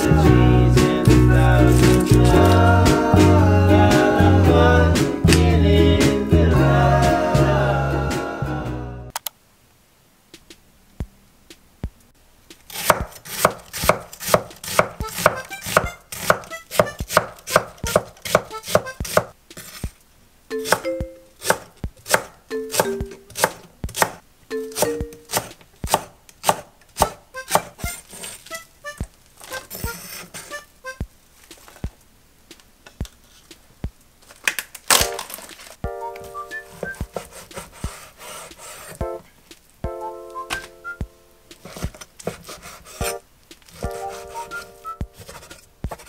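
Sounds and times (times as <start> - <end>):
knife chopping on wooden board: 12.7 - 19.3, 21.4 - 24.2, 24.8 - 28.3, 36.8 - 39.1, 41.6 - 43.2, 43.8 - 46.0.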